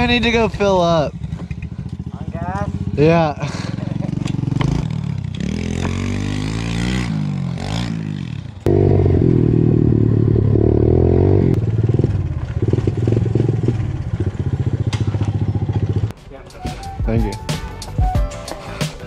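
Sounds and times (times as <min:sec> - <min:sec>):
small motorcycle engine running: 0:08.7 - 0:16.1.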